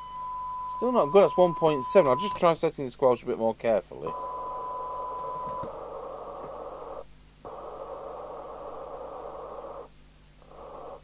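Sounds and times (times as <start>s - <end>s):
steady test tone: 0.0s - 2.6s, 4.0s - 9.8s
radio receiver hiss: 0.7s - 2.6s, 3.9s - 11.0s.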